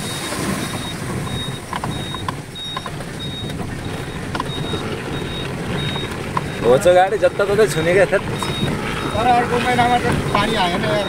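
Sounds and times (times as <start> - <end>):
truck engine running: 0.0 - 11.0
sharp knocks and rattles: 0.8 - 6.7.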